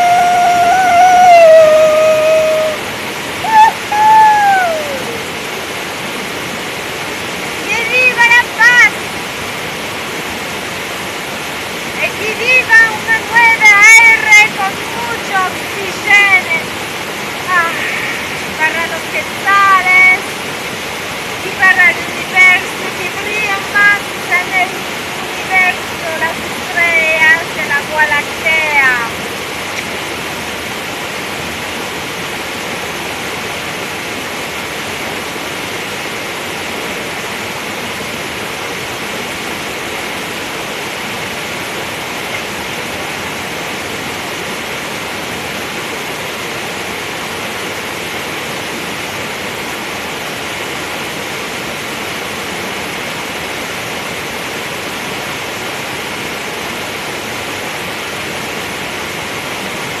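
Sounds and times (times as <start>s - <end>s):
steady rushing noise: 0.0s - 36.6s.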